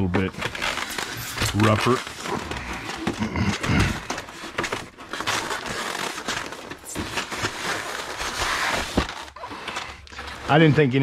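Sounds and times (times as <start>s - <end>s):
cardboard and foam rustling: 0.0s - 11.0s.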